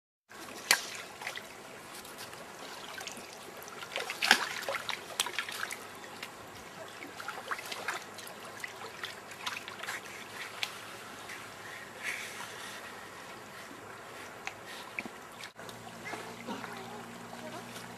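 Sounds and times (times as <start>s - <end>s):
water lapping and trickling: 0.3s - 17.9s
water splash: 0.4s - 10.8s.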